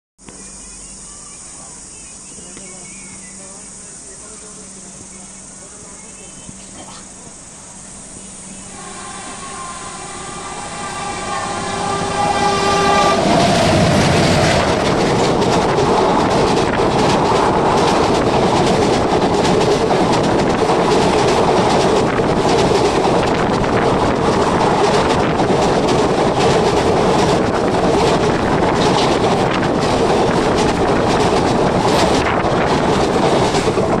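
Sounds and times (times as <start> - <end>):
train horn: 8.6 - 14.9
train wheels clickety-clack: 11.6 - 34.0.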